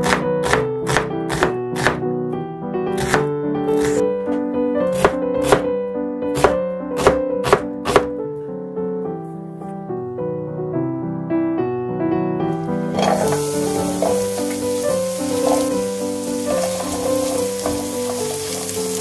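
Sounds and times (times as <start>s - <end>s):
knife chopping on wooden board: 0.0s - 2.0s, 3.0s - 4.0s, 4.9s - 5.7s, 6.4s - 8.1s
background piano music: 0.0s - 19.0s.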